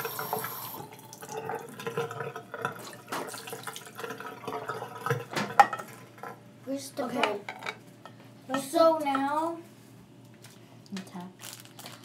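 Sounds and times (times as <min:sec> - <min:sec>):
tap running: 0:00.0 - 0:06.4.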